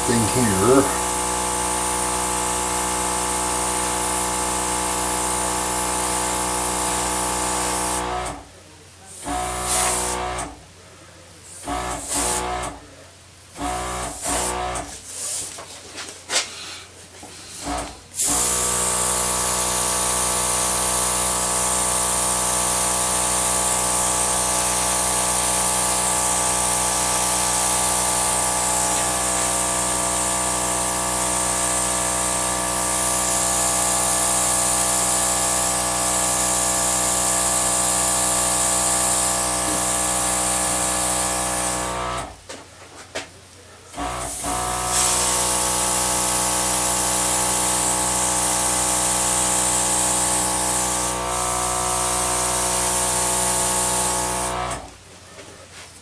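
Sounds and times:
air gun hissing: 3.8s - 8.4s, 9.2s - 10.4s, 11.6s - 12.7s, 13.6s - 15.4s, 17.6s - 42.0s, 44.0s - 54.8s.

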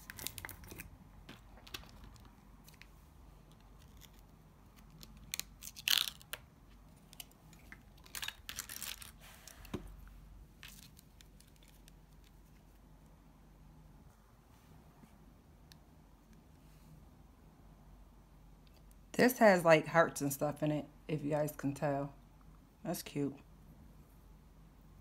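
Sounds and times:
plastic jar clicks and rustles: 3.5s - 9.9s.

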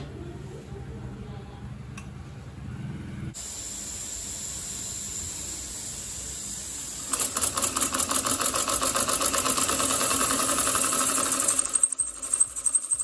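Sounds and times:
steam hissing: 3.4s - 8.4s.

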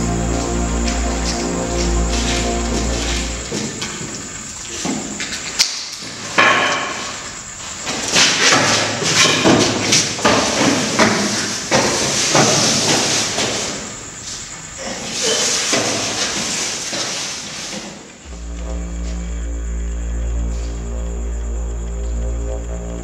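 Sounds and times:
low music drone: 0.0s - 4.1s, 18.2s - 23.0s.

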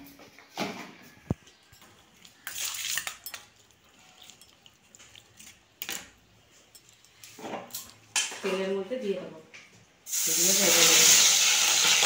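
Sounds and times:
steel bowl and utensils clattering: 1.3s - 8.4s.

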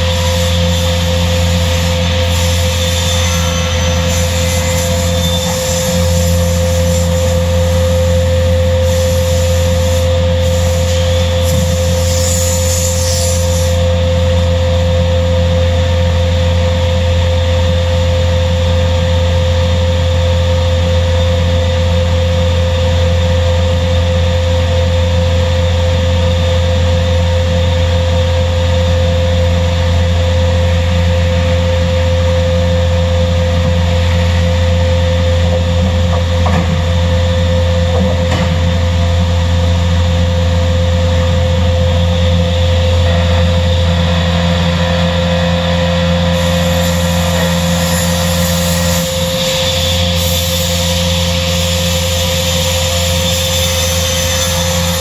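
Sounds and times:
steady high tone: 0.0s - 8.6s
panel saw machine drone: 0.0s - 55.0s.

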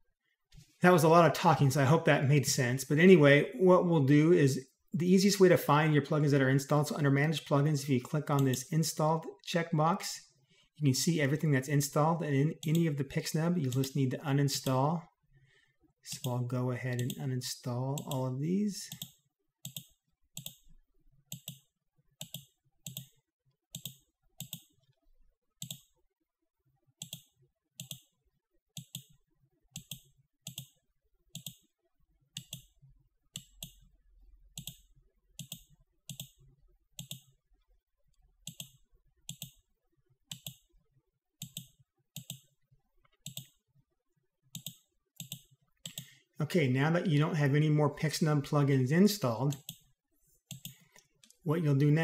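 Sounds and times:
computer mouse clicking: 8.3s - 8.7s, 12.6s - 12.9s, 16.9s - 17.2s, 17.9s - 18.2s, 18.9s - 25.0s, 25.6s - 25.9s, 27.0s - 28.1s, 28.8s - 31.7s, 32.3s - 33.9s, 34.5s - 37.4s, 38.1s - 39.6s, 40.3s - 40.7s, 41.4s - 43.6s, 44.5s - 46.2s, 49.5s - 51.4s.

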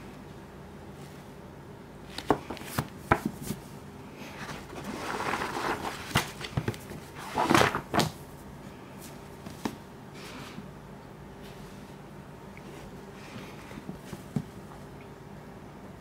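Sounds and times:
pages riffled: 4.5s - 8.2s.

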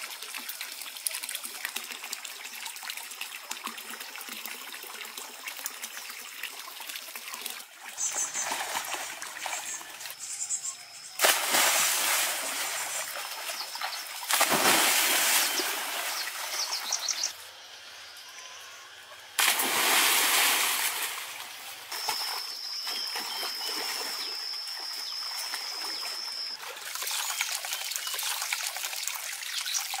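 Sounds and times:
water splashing from swimming: 11.2s - 16.7s, 19.4s - 29.4s.

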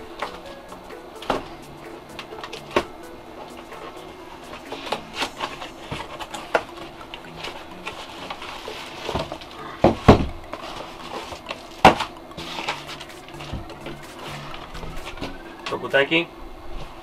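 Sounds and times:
cardboard and plastic rustling: 4.6s - 16.0s.

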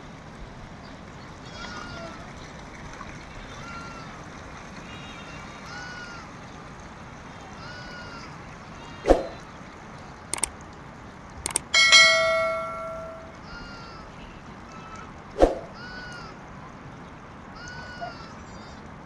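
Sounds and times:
metal bell ring: 11.5s - 13.4s.

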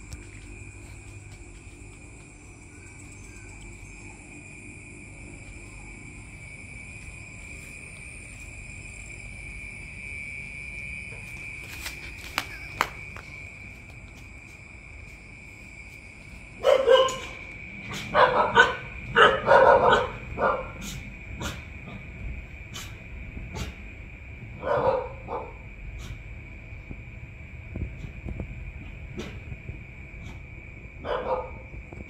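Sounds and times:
dog barking: 16.6s - 21.6s, 24.6s - 25.6s, 31.0s - 31.7s.

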